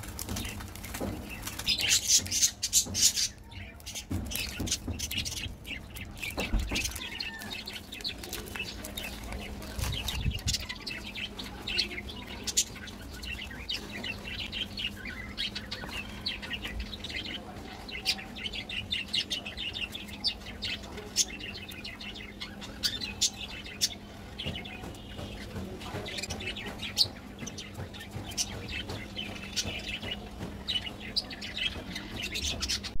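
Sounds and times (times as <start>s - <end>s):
plastic wrapper crinkling: 0.0s - 1.8s, 6.2s - 10.5s
small birds chirping: 0.0s - 33.0s.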